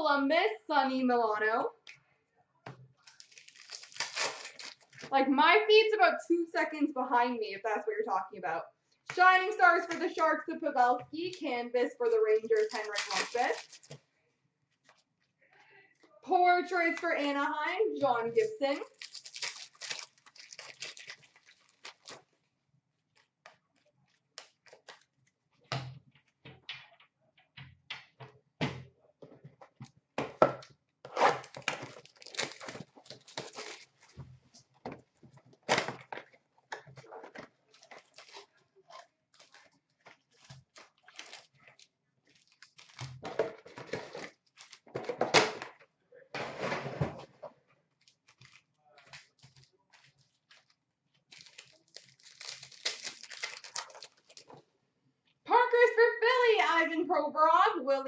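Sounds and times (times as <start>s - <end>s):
wrappers rustling and tearing: 3.0s - 5.1s, 12.2s - 14.1s, 18.6s - 22.5s, 31.1s - 34.2s, 36.9s - 44.9s, 48.0s - 54.6s.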